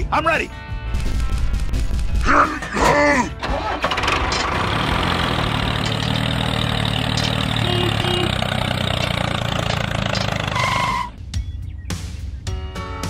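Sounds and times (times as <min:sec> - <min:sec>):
tractor engine idling: 0:03.4 - 0:11.2.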